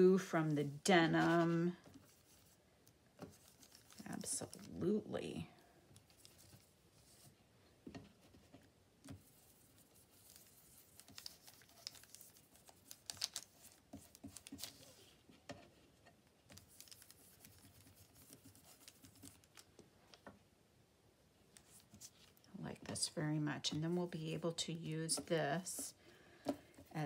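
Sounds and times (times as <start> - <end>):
paper rustling and tapping: 10.2 - 15.6
brush dabbing on paper: 16.5 - 19.5.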